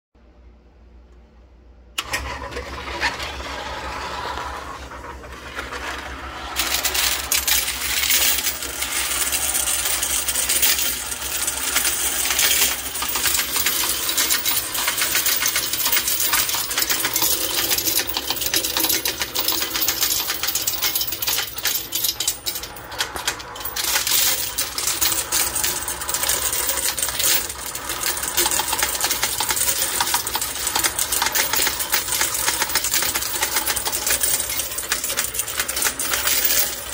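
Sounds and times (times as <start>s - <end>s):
coin sorter motor humming: 2.0s - 36.9s
coins clattering: 5.0s - 36.9s.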